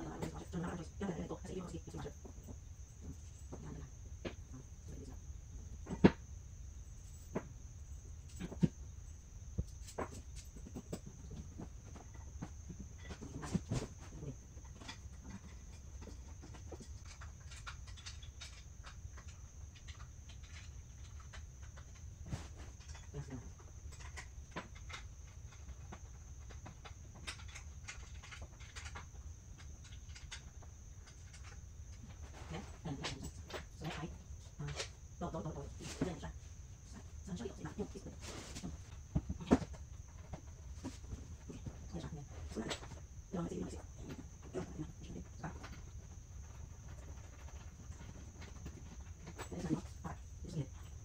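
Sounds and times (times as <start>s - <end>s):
steady low hum: 0.0s - 51.0s
chair parts knocking and clicking: 9.6s - 32.2s.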